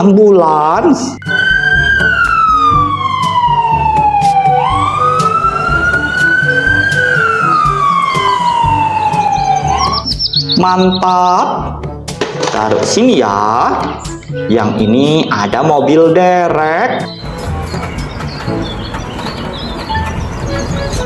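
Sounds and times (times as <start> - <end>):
background music: 0.0 - 21.0
ambulance siren wailing: 1.2 - 10.2, 17.0 - 21.0.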